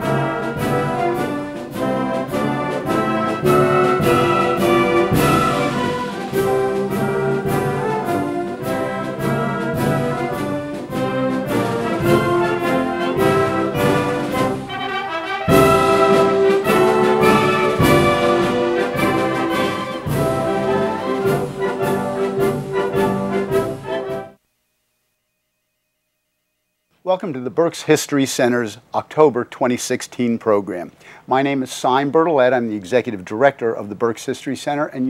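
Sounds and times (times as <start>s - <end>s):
brassy orchestral music: 0.0s - 24.4s
steady percussive beat: 0.0s - 24.4s.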